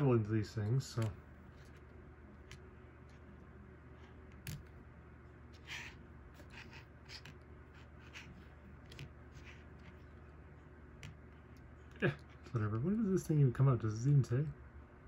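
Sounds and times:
toy scraping: 5.5 - 10.2.

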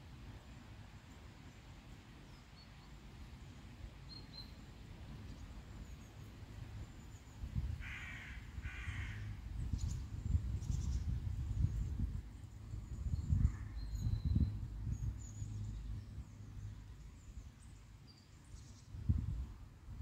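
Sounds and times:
faint small birds chirping: 0.4 - 19.4
crow cawing: 7.8 - 9.3.

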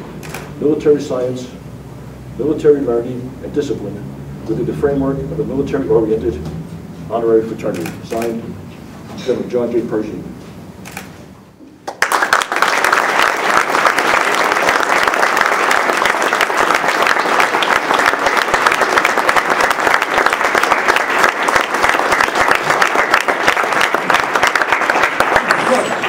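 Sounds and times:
audience applauding: 11.8 - 26.0.

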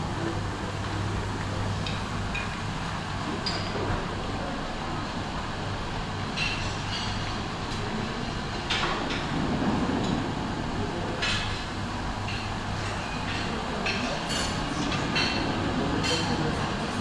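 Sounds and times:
steady low hum: 0.0 - 17.0
crockery and cutlery clinking: 3.4 - 3.9, 12.3 - 16.7.

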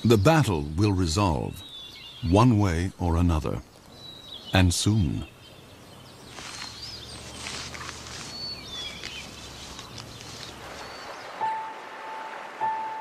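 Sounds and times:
eagles chirping: 3.6 - 13.0
nest sticks rustling: 6.3 - 11.2.

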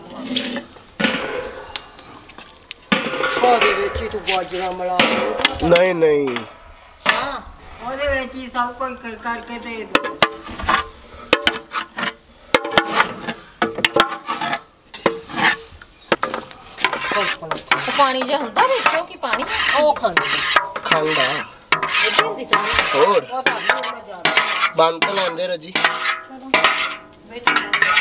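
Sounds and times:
metal spatula scraping a pot: 0.0 - 1.7, 9.9 - 28.0.

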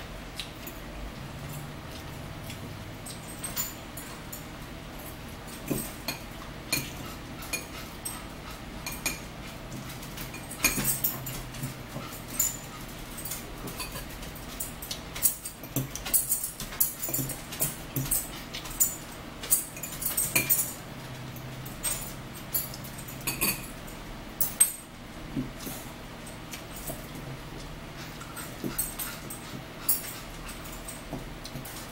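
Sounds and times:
chewing: 0.3 - 3.4
forks clinking on plates: 0.4 - 23.8, 24.4 - 24.9.

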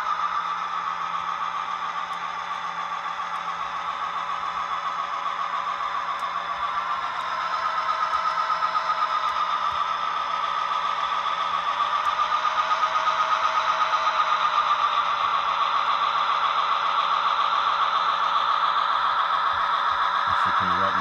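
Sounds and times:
model train drone: 0.0 - 21.0.

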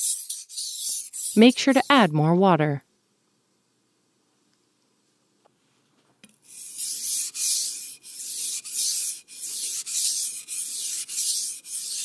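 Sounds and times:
knife scraping on whetstone: 0.0 - 1.9, 6.5 - 12.0.

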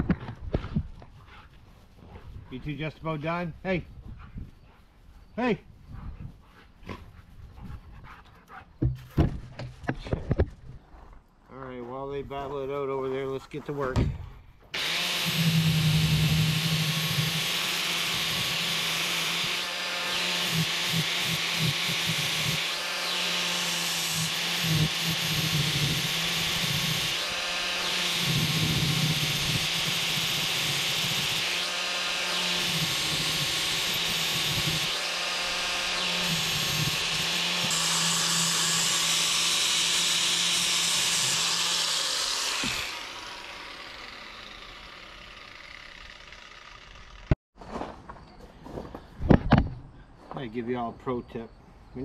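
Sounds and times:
angle grinder grinding metal: 14.7 - 47.4
grinder winding down: 14.8 - 47.4.

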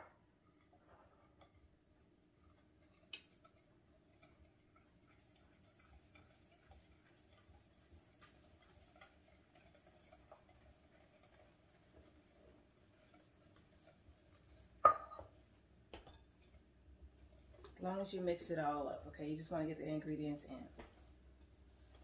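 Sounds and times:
measuring cup tapping glass bowl: 14.8 - 15.4.

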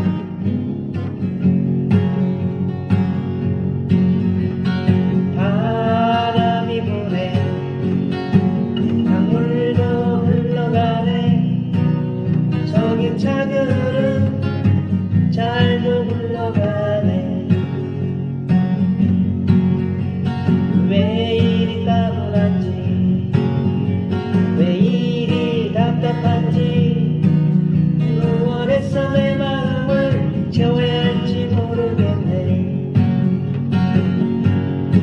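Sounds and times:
strummed guitar: 0.0 - 35.0
person singing: 5.4 - 7.8, 8.8 - 11.9, 12.5 - 18.1, 20.8 - 23.2, 24.5 - 32.9.

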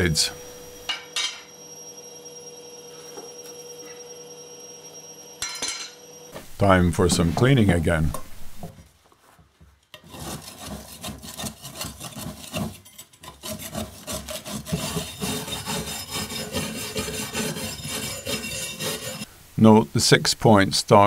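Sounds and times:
wire brush scrubbing metal: 10.0 - 19.3.

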